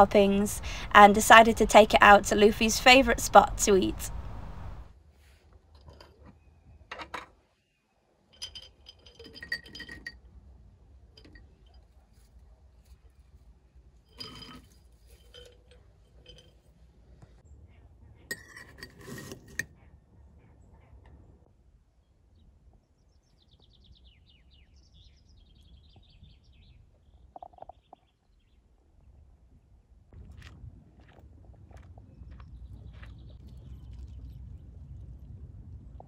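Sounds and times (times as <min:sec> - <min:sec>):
glass and crockery clinking: 0:08.4 - 0:10.2, 0:14.1 - 0:16.6.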